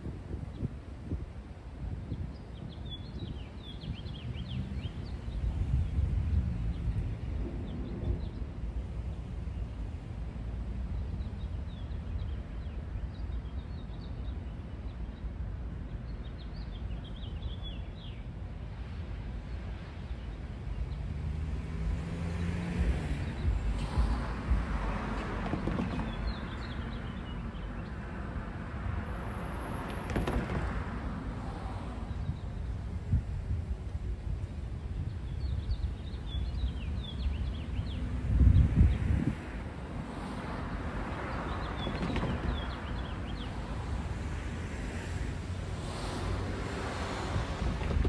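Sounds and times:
vehicle passing: 0:20.8 - 0:32.3, 0:37.8 - 0:48.0
birds chirping: 0:25.5 - 0:28.0, 0:41.2 - 0:43.7.

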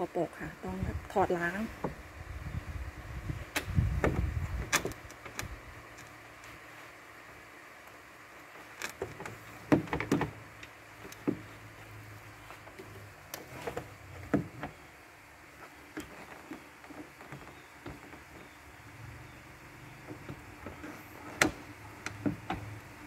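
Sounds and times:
faint hum: 0:00.0 - 0:23.0.

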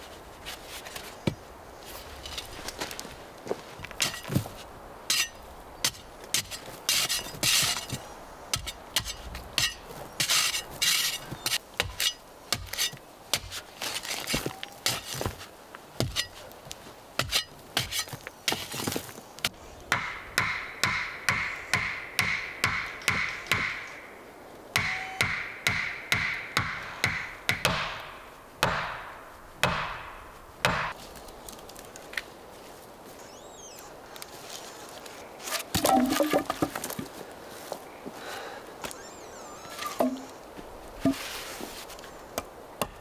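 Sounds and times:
shovel digging sandy soil: 0:05.1 - 0:16.4, 0:17.2 - 0:19.0
axe chopping into ground: 0:35.5 - 0:37.1.

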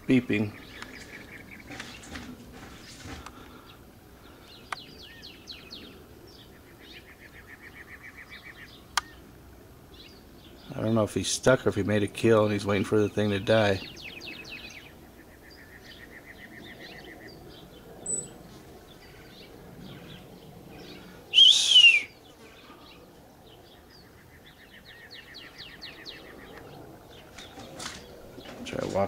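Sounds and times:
bird dry trill: 0:21.3 - 0:23.0.

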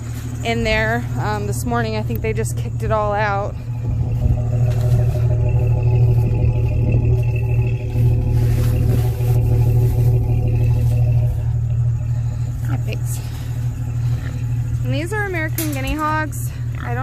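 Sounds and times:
engine running steadily: 0:00.0 - 0:17.0.

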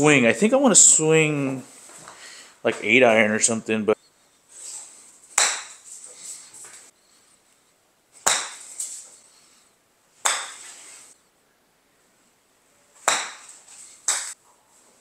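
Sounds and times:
golf club striking ball: 0:05.4 - 0:05.8, 0:08.2 - 0:08.7, 0:10.2 - 0:10.7, 0:13.0 - 0:13.5.

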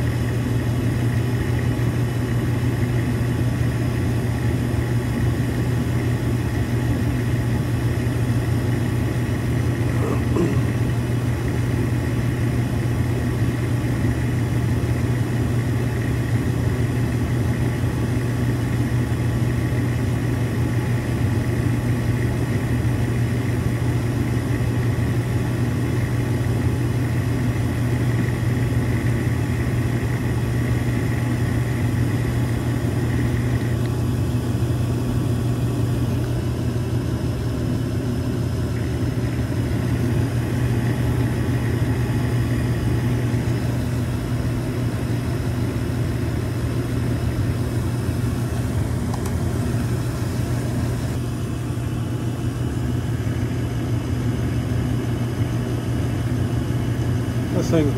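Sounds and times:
gas furnace humming: 0:00.0 - 0:57.9.

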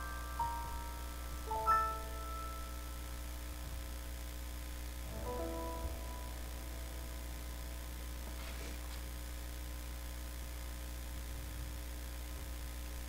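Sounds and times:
digital piano chord: 0:00.0 - 0:04.0, 0:05.0 - 0:08.1
low electrical mains hum: 0:00.0 - 0:13.0
faint rustle: 0:08.3 - 0:09.1.

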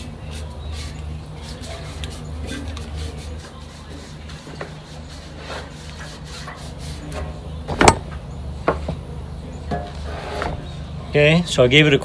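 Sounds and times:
sandpaper scuffing metal: 0:00.0 - 0:07.4.

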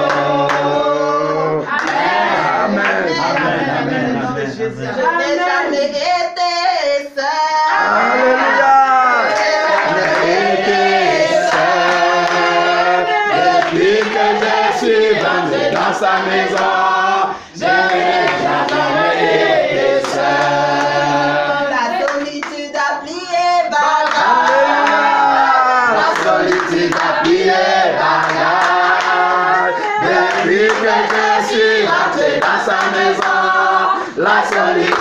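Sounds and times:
hand claps: 0:00.0 - 0:00.7, 0:01.7 - 0:02.0, 0:09.3 - 0:10.3, 0:11.5 - 0:12.6, 0:13.5 - 0:14.6, 0:26.0 - 0:27.4, 0:28.2 - 0:29.2, 0:29.8 - 0:31.4, 0:34.5 - 0:35.0
group of voices singing: 0:00.0 - 0:35.0.

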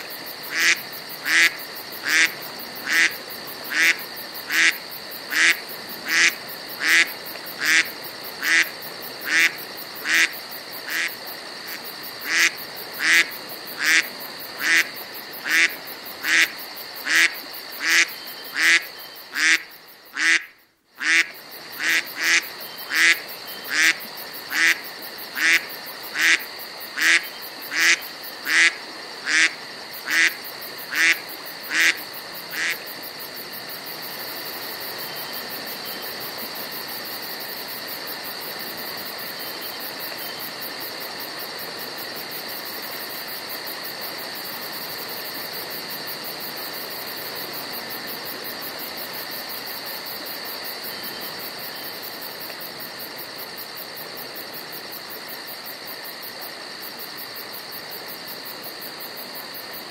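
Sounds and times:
high-pitched hiss: 0:00.0 - 0:59.9
duck quacking: 0:00.5 - 0:10.3, 0:10.9 - 0:11.1, 0:12.2 - 0:14.0, 0:14.6 - 0:24.8, 0:25.4 - 0:26.4, 0:27.0 - 0:32.8.

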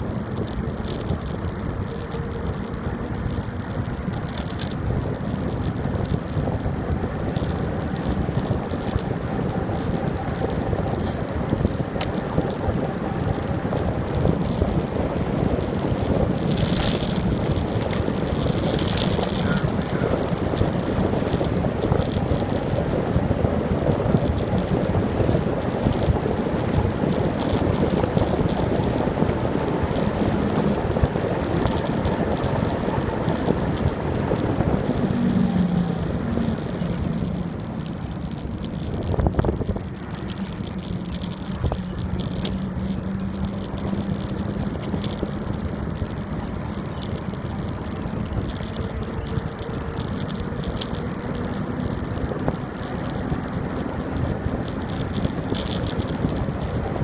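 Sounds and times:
bicycle tyre noise on road: 0:00.0 - 0:57.0
wind on microphone: 0:00.0 - 0:57.0.

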